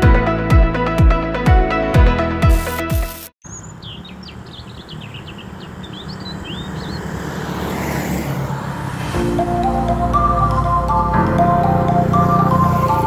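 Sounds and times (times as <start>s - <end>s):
bird chirping rapidly: 3.4s - 7.3s
small motorcycle engine running: 11.7s - 13.0s.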